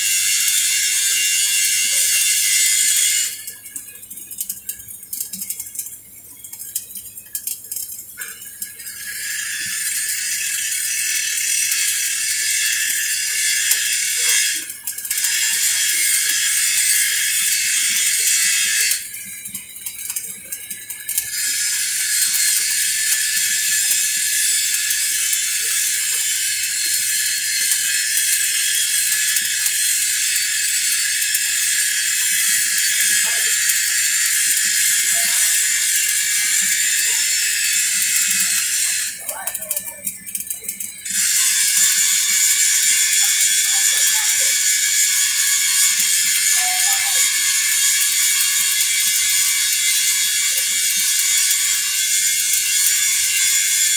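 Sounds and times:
welding arc crackling hiss: 0:00.0 - 0:53.9.

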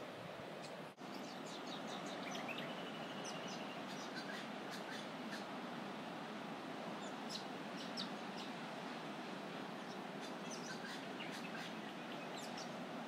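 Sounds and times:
distant surf: 0:00.0 - 0:13.0
birds chirping and twittering: 0:00.6 - 0:05.5, 0:07.0 - 0:09.0, 0:09.8 - 0:12.8.

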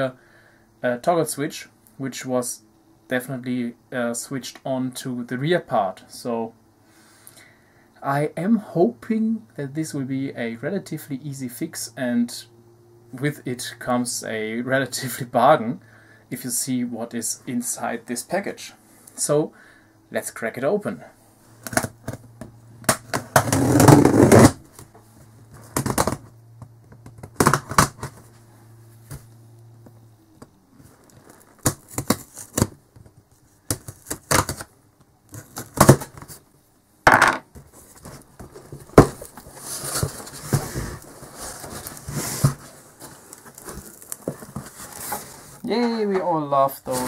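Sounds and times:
packing tape tearing: 0:22.9 - 0:24.6, 0:27.2 - 0:28.2, 0:31.0 - 0:32.8, 0:33.7 - 0:34.7, 0:35.3 - 0:36.4, 0:43.2 - 0:45.4
cardboard knocking and rustling: 0:25.5 - 0:26.3, 0:37.1 - 0:45.5.

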